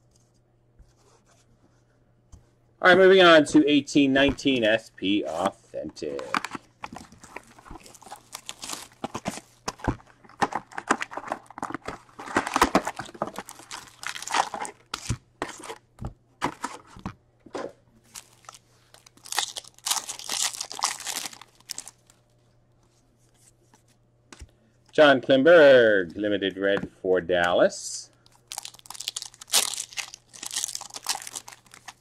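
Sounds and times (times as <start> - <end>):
foil wrappers crinkling and tearing: 6.2 - 15.1, 18.1 - 22.2, 28.3 - 32.0.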